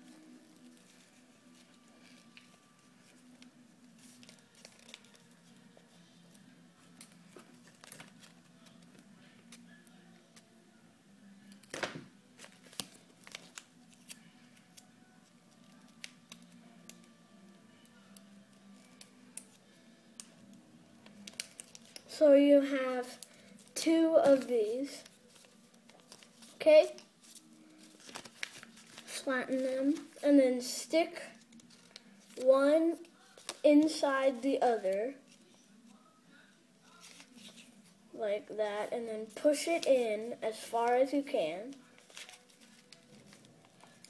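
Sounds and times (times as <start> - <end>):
paper being folded: 0.6 - 5.6, 23.2 - 30.2, 31.4 - 32.5, 39.9 - 40.7, 41.7 - 44.0.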